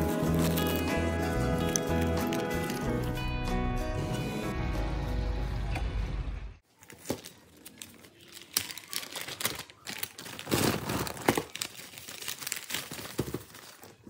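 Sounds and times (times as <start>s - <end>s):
plastic bag crinkling: 0.0s - 3.2s, 6.7s - 14.0s.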